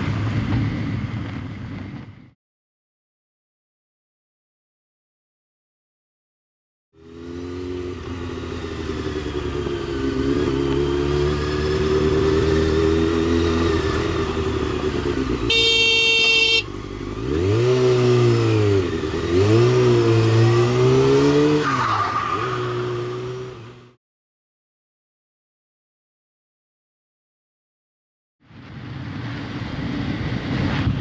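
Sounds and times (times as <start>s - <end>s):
motorcycle engine revving: 7.0s - 24.0s
horn: 15.5s - 16.6s.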